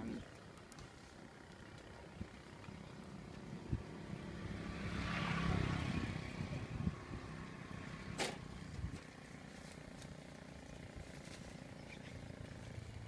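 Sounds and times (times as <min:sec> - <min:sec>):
vehicle engine passing by: 0:02.7 - 0:13.0.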